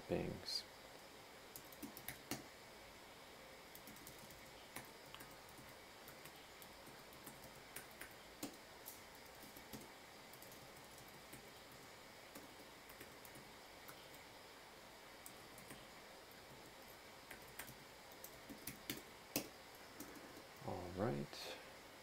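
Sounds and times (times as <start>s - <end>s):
faint keyboard typing: 1.5s - 2.5s, 3.7s - 14.3s, 15.2s - 20.7s.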